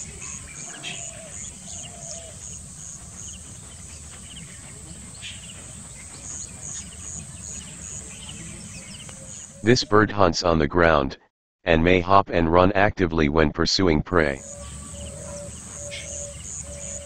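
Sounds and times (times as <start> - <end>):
insect chirping: 0.0 - 9.6, 14.4 - 17.0.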